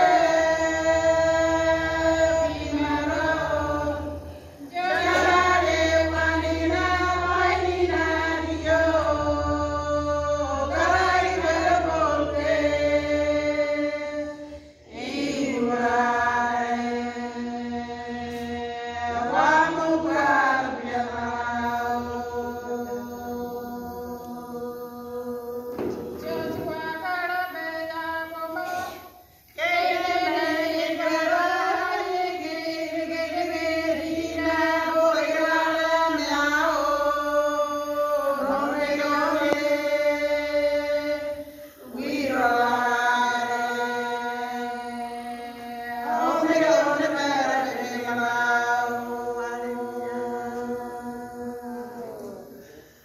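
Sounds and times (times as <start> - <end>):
women singing a hymn: 0.0 - 53.0.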